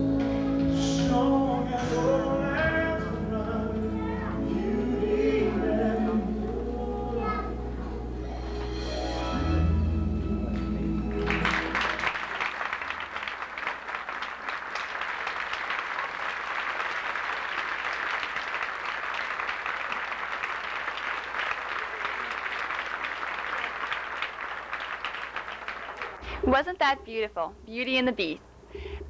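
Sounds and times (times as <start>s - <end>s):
audience applauding: 11.1s - 26.4s.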